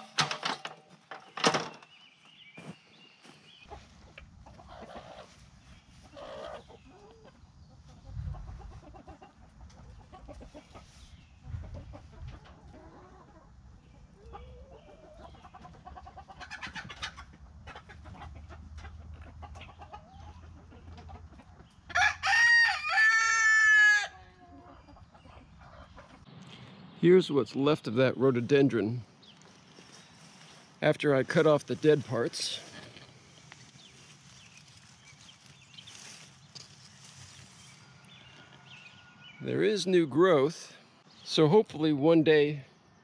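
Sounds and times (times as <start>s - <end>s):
rooster crowing: 21.9s - 24.4s.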